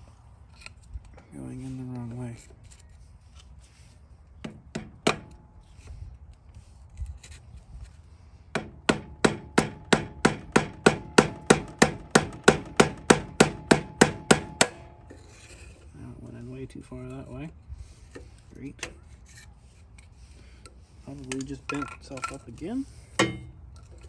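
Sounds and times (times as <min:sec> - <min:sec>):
hammer striking metal pipe: 0:08.6 - 0:15.2, 0:23.2 - 0:23.6.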